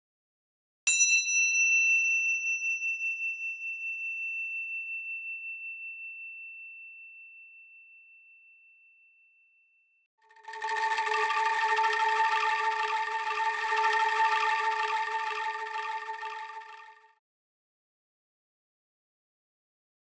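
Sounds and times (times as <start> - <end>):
metallic bell-like chime: 0.9 - 9.7.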